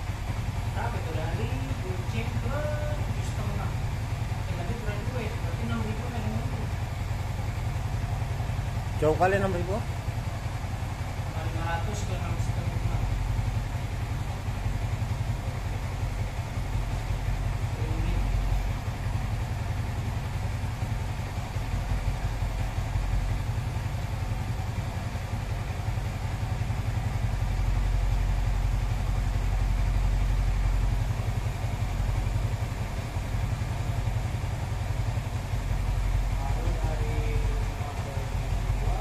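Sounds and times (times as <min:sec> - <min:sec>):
motorcycle engine idling: 0:00.0 - 0:39.0.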